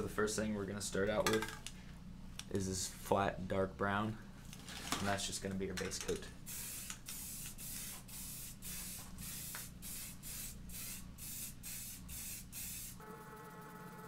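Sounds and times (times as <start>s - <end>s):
spray can hissing bursts: 6.5s - 13.0s.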